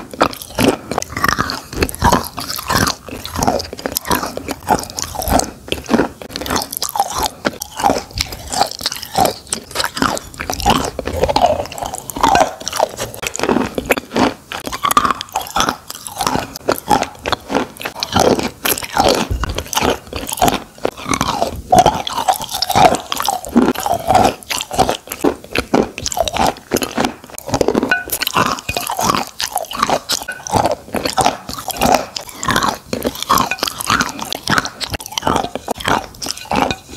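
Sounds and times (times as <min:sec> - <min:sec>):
chewing crunches: 0:00.0 - 0:36.9
wet mouth clicks: 0:00.0 - 0:36.9.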